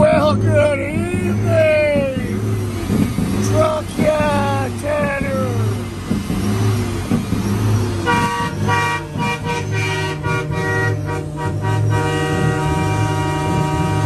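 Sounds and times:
low bass throb: 0.0s - 14.0s
truck air horn: 8.0s - 14.0s.

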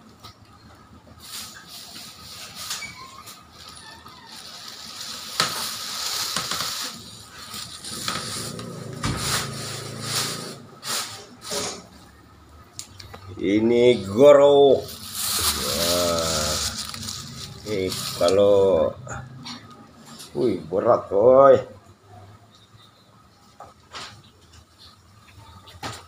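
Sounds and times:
plastic bags rustling: 1.2s - 12.0s, 13.9s - 20.3s.

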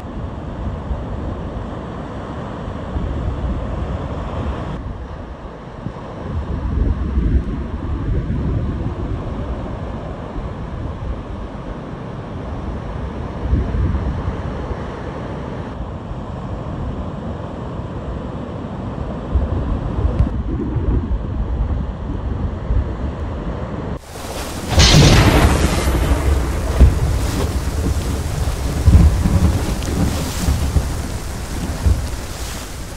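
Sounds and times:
wind buffeting microphone: 19.3s - 23.4s, 24.0s - 32.9s
thunder: 20.2s - 22.1s, 24.0s - 32.9s
heavy surf breaking: 24.0s - 32.9s
rain: 24.0s - 32.9s.

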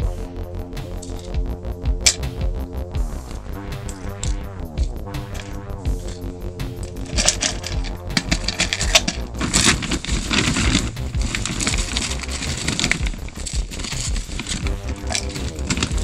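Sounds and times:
stones clinking in a bag: 3.8s - 16.0s
plastic bag crinkling: 6.8s - 16.0s.

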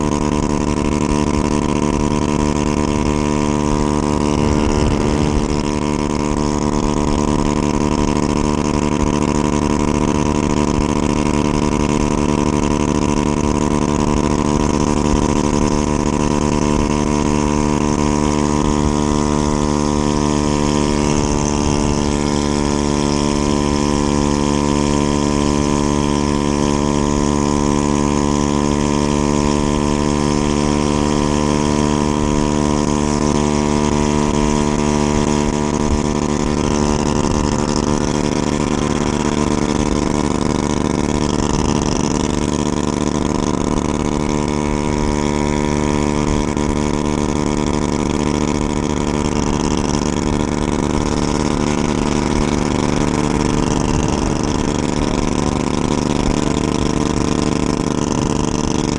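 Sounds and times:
scooter engine cruising: 0.0s - 58.9s
wind on microphone: 2.1s - 9.3s.

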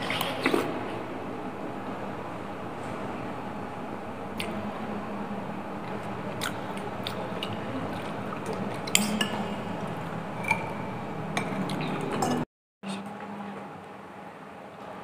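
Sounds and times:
wet chewing of noodles: 5.8s - 8.9s
metal cutlery clinking on glass bowl: 8.9s - 9.6s.

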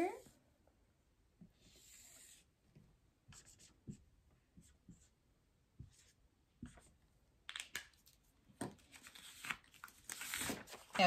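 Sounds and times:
marker writing on whiteboard: 3.3s - 5.2s, 5.8s - 7.0s
paper card rustling: 7.5s - 11.0s.

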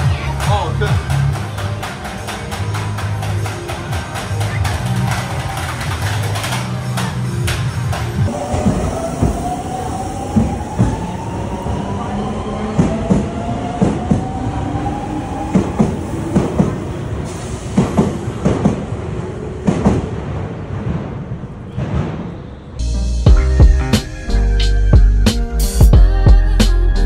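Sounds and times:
wheels clacking over rail joints: 0.0s - 9.4s
train rumble: 0.0s - 24.4s.

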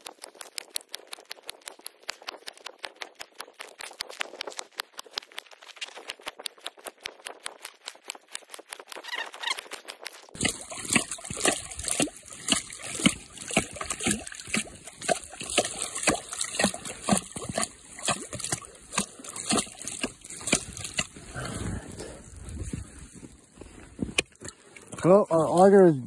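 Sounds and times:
water splashing: 10.4s - 23.6s, 24.2s - 26.0s.

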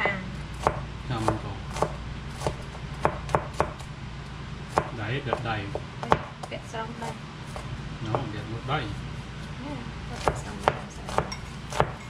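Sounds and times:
knife chopping on cutting board: 0.6s - 3.9s, 4.7s - 6.3s, 7.5s - 8.4s, 10.2s - 12.0s.

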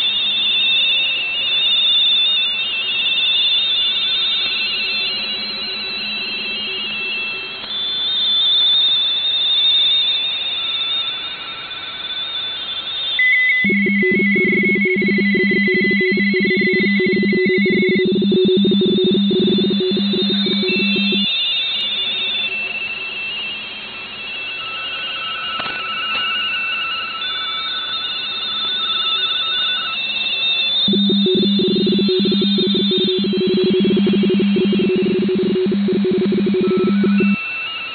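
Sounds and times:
warbling two-tone data signals: 13.2s - 21.4s, 30.8s - 37.4s.

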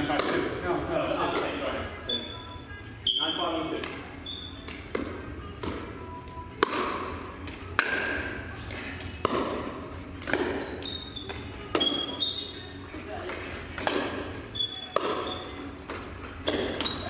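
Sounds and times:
paddles hitting plastic ball: 0.1s - 0.5s, 6.6s - 10.7s, 13.2s - 14.3s, 14.9s - 17.0s.

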